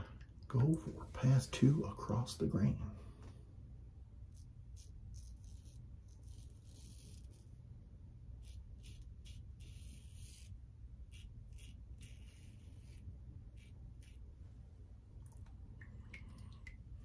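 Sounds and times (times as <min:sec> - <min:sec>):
razor rasping on stubble: 0:04.3 - 0:07.6, 0:08.4 - 0:14.4.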